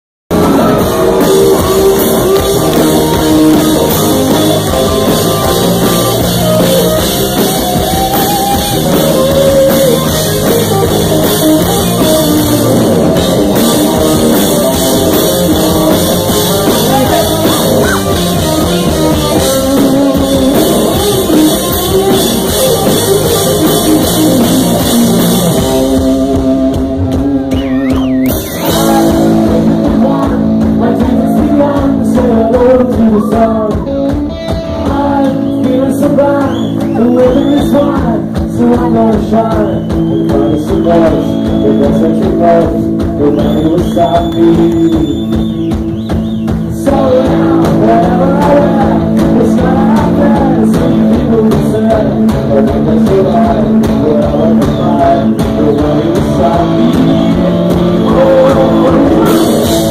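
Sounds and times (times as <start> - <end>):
bass: 0.0 - 59.9
drum kit: 0.3 - 59.9
electric guitars: 0.3 - 59.9
lead singing: 25.5 - 59.9.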